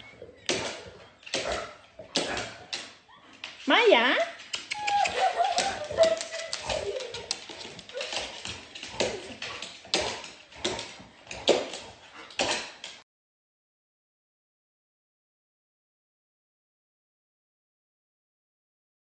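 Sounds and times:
dog whining: 0.0s - 3.4s, 4.6s - 9.7s
dog claws on hardwood floor: 0.0s - 3.7s, 4.3s - 13.0s.

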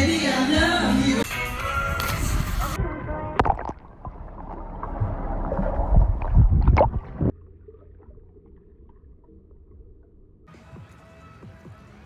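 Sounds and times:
dull underwater hum: 1.8s - 10.6s
underwater bubbling and gurgling: 2.8s - 10.5s.

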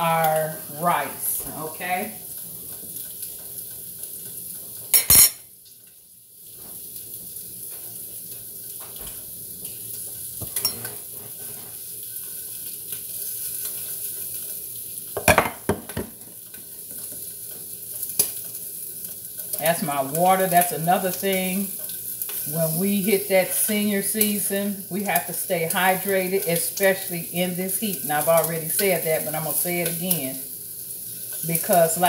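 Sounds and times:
food sizzling in a skillet: 0.0s - 32.0s
glass clinking and knocking: 15.2s - 16.1s.

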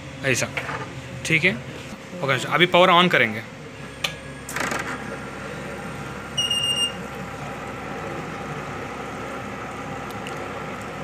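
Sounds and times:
high buzzer beep: 6.3s - 7.0s.

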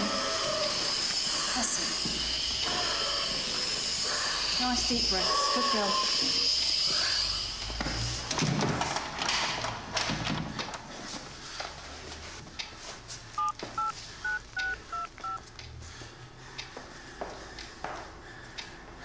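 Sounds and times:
phone keypad beeps: 13.4s - 15.4s.

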